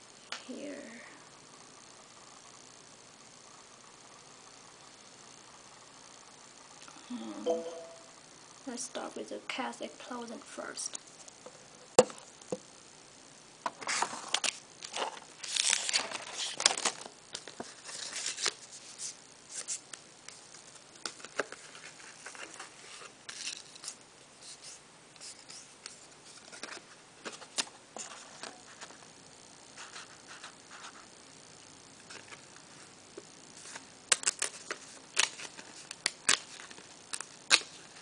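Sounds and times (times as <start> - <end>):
card stock rustling and scraping: 13.8 - 19.8, 21.0 - 29.0.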